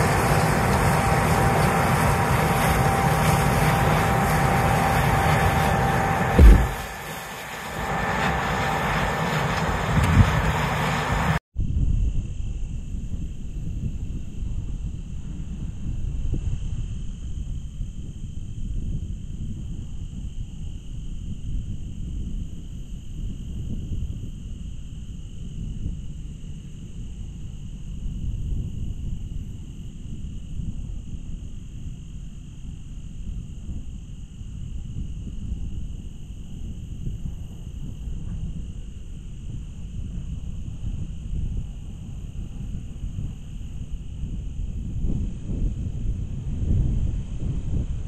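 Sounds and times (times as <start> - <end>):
low uneven rumble: 0.0 - 11.4.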